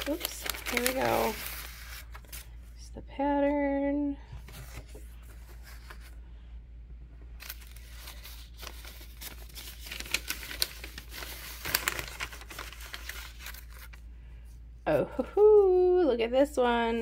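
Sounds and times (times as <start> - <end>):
sharp paper crackles: 0.0 - 2.5, 7.4 - 14.0
paper envelope crinkling: 0.0 - 2.6, 4.4 - 6.2, 7.4 - 14.1.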